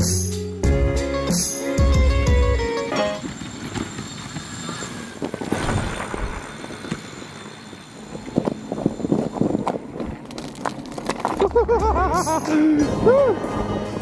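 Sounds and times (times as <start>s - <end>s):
bike tyres crunching snow and ice: 2.8s - 14.0s
wind on microphone: 8.0s - 10.2s.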